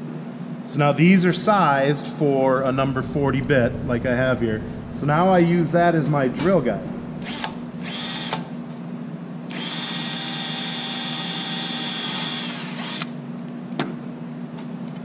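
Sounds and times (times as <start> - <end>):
cordless drill drilling metal: 7.2 - 8.4, 9.5 - 13.2.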